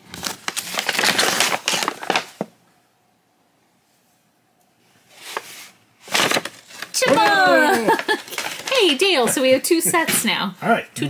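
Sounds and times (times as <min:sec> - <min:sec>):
paper bag crinkling and crackling: 0:00.0 - 0:02.5, 0:05.2 - 0:09.0.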